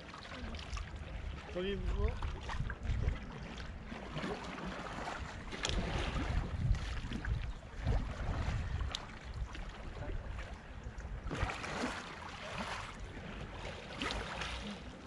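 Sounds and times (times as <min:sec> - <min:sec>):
wind rumble on microphone: 0:00.0 - 0:12.0
paddle sweeping water surface: 0:00.0 - 0:15.0
water splashing: 0:00.0 - 0:15.0.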